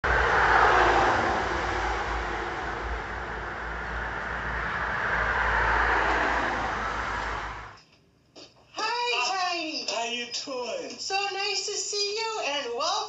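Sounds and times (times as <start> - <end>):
cars passing on street: 0.0 - 7.9.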